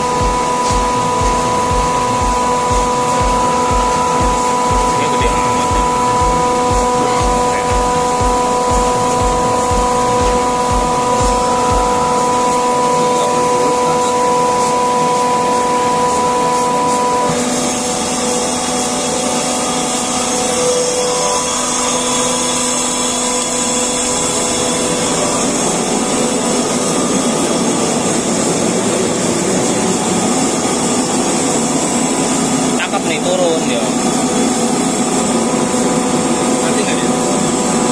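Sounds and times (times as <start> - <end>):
air compressor humming and whining: 0.0 - 37.9.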